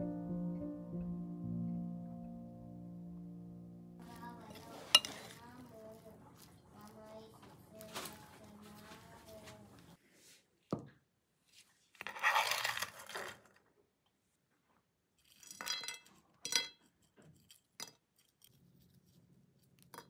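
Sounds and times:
rustling lettuce: 4.0s - 9.9s
metal spoon clinking on glass bowl: 4.9s - 5.3s.

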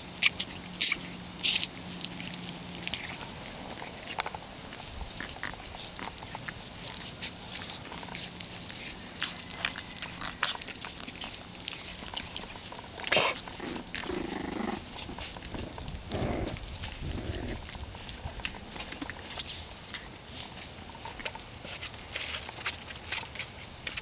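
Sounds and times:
puppies scuffling in grass: 0.0s - 24.0s
puppy grunts and growls: 5.1s - 18.7s.

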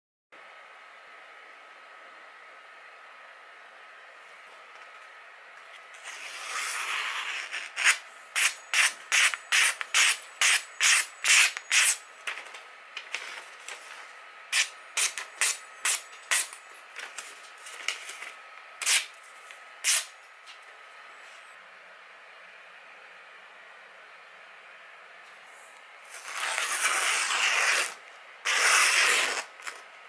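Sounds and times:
knife slicing through paper: 26.1s - 29.8s.

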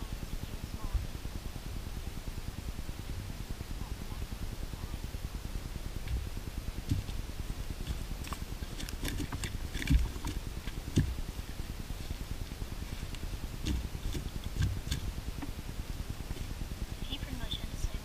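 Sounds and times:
steady low rumble: 0.0s - 18.0s
fish thumping on grass: 6.9s - 7.2s.

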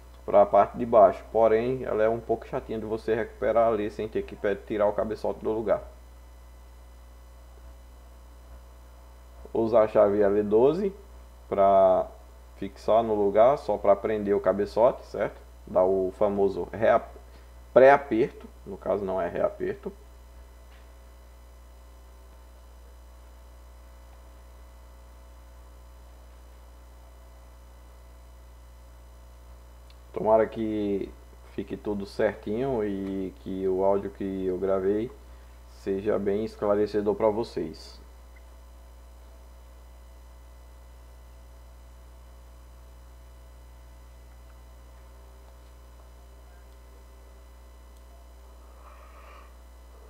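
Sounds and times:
electrical mains hum: 0.0s - 50.0s
faint hiss: 48.1s - 50.0s.

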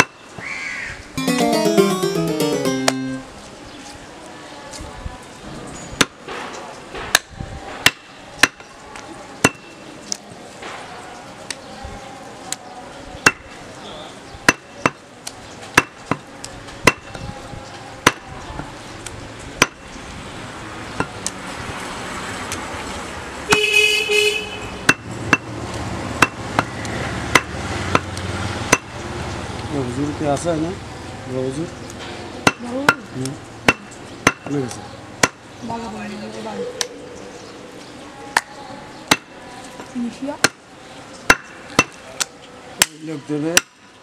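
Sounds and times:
cleaver chopping meat on wood: 41.3s - 42.0s, 43.6s - 43.8s.

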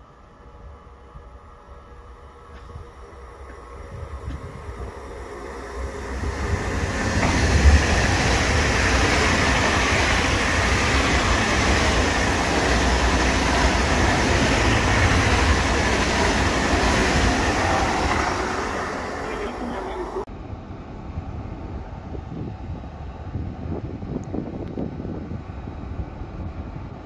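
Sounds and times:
train wheels rushing on rail: 1.1s - 20.3s.

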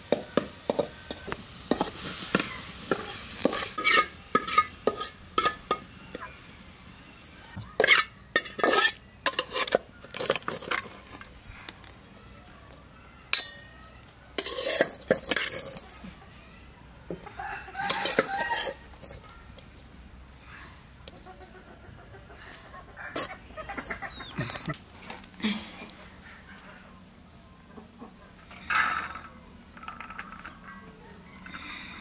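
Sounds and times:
metal spatula scraping a wok: 0.1s - 6.3s, 7.8s - 11.3s, 14.4s - 15.8s, 17.8s - 19.2s, 23.1s - 23.3s
rooster crowing: 17.3s - 18.8s.

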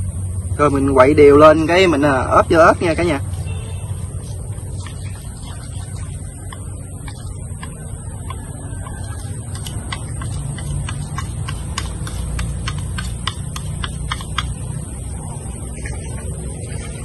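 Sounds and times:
chopsticks clicking against a bowl: 6.4s - 14.8s.

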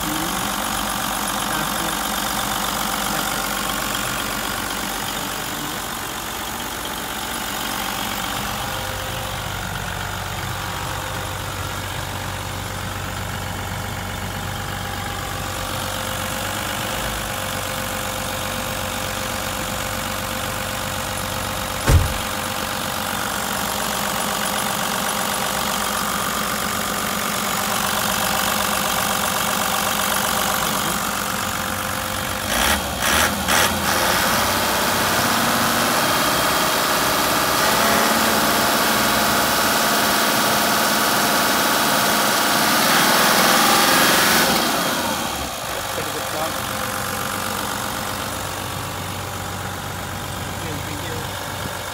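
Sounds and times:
diesel bus engine idling: 0.0s - 51.9s
quick knocks: 21.8s - 22.4s
sharp thump: 21.8s - 22.4s.

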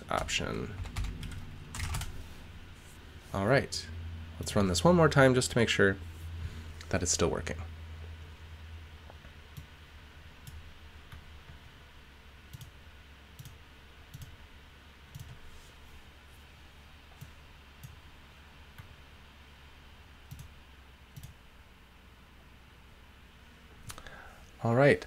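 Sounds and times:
faint low hum: 0.0s - 25.0s
computer mouse clicks: 12.5s - 12.7s, 13.4s - 14.4s, 15.1s - 15.4s, 20.3s - 20.5s, 21.1s - 21.4s.

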